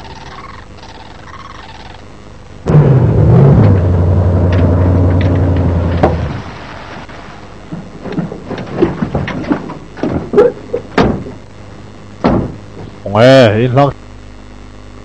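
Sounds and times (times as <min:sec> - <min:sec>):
low steady hum: 0:00.0 - 0:15.0
sharp thuds: 0:04.5 - 0:06.5, 0:07.6 - 0:11.4, 0:12.2 - 0:13.0
truck door clunks and knocks: 0:05.2 - 0:06.3, 0:07.8 - 0:11.4, 0:12.2 - 0:13.0.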